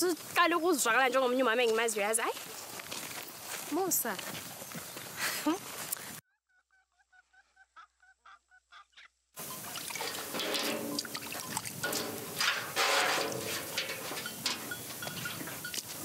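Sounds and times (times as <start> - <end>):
water pouring into metal basin: 9.4 - 15.4.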